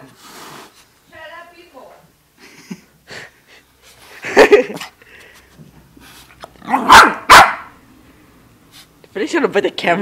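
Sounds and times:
puppy barking: 6.6s - 7.8s.

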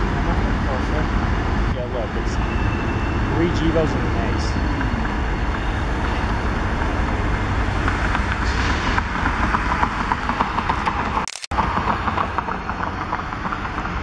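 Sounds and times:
rapid clicking of train passing: 3.1s - 14.0s.

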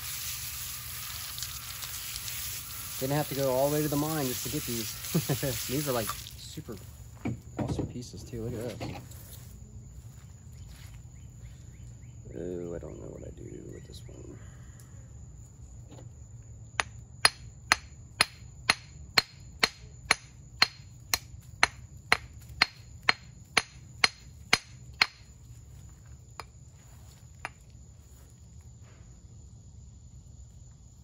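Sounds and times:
small hammer tapping on rock: 16.8s - 25.2s.

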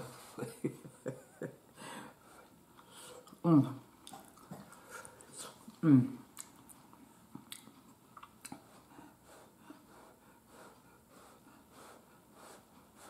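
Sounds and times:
person breathing faintly: 1.7s - 3.3s, 8.6s - 13.0s.

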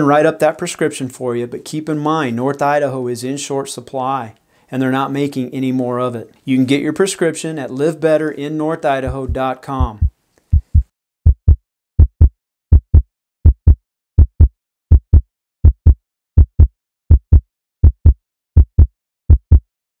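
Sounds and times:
heartbeat thumps: 9.0s - 19.7s.

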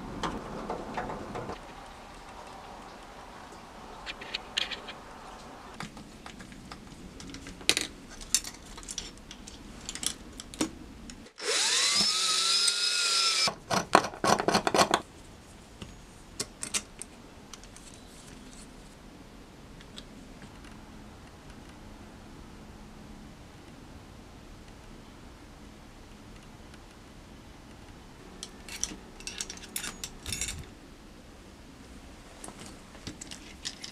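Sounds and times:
power drill whine: 11.4s - 13.5s
small parts clicking: 28.4s - 30.7s.

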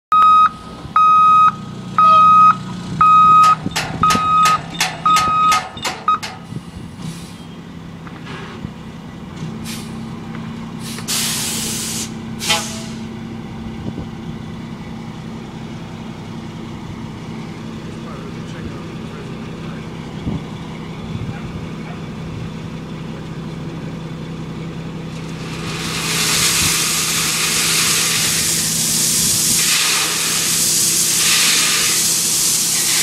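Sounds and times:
truck backup alarm beeping: 0.1s - 7.7s
diesel engine idling: 0.1s - 33.0s
air brakes hissing: 6.3s - 7.6s, 8.2s - 8.6s, 9.6s - 10.0s, 10.8s - 13.1s, 25.7s - 33.0s.

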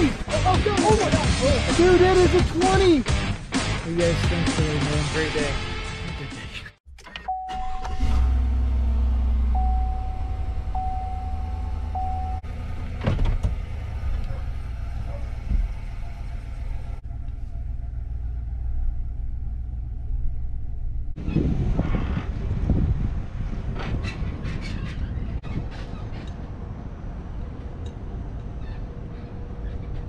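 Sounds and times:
low rumble: 8.1s - 24.5s
thin steady tone: 9.5s - 12.4s.

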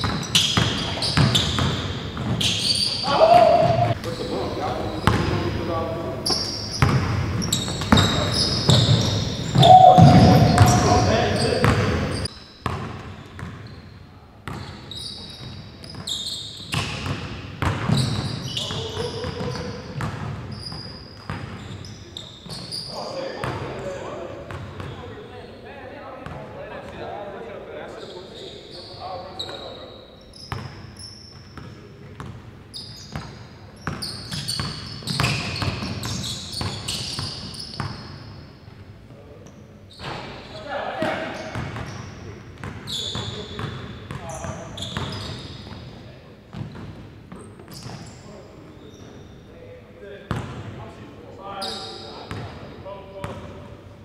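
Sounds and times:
sneakers squeaking: 0.0s - 26.4s, 27.9s - 49.6s, 50.3s - 50.7s, 51.5s - 53.6s
basketball bouncing on hardwood: 6.3s - 12.9s.

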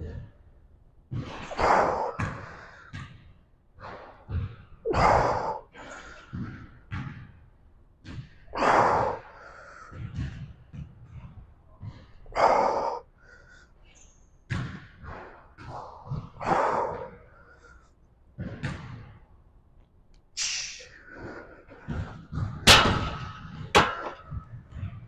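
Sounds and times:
man breathing hard: 4.9s - 6.8s, 8.6s - 10.2s, 11.8s - 14.0s, 15.6s - 18.2s, 20.4s - 22.3s.

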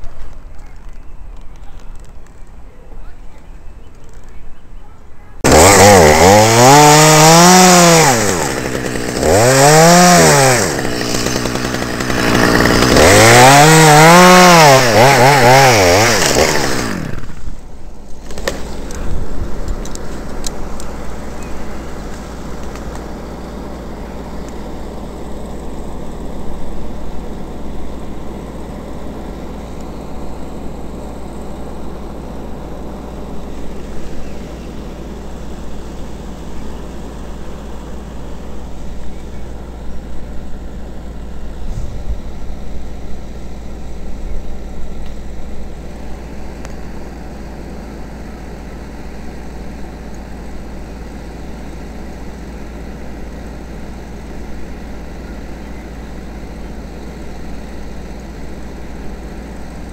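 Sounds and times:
chainsaw revving: 5.4s - 40.0s.

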